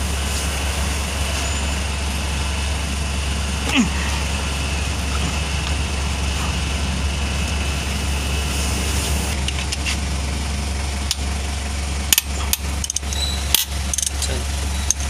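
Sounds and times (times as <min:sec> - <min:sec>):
low mechanical drone: 0:00.0 - 0:15.0
hand tools clicking on engine: 0:11.0 - 0:11.3, 0:12.1 - 0:15.0.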